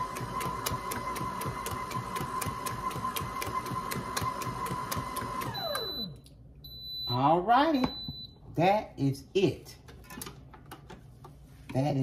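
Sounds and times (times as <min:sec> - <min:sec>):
stand mixer motor whine: 0:00.0 - 0:05.9
high beep: 0:05.6 - 0:08.4.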